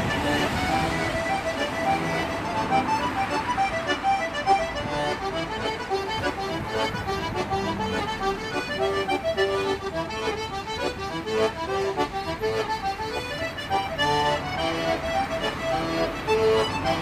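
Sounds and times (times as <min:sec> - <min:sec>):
button accordion playing fast reel: 0:00.0 - 0:17.0.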